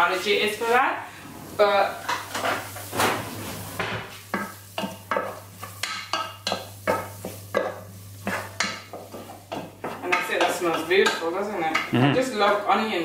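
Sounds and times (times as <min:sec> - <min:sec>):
wooden spoon scraping a saucepan: 0:00.0 - 0:12.6
shallots frying in butter: 0:03.6 - 0:12.8.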